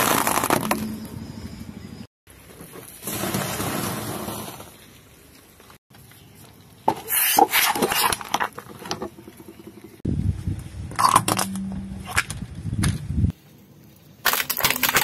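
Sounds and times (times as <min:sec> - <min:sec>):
plastic bottles cracking and popping: 0:14.2 - 0:15.0
tyre crushing crunchy biscuits: 0:14.2 - 0:15.0.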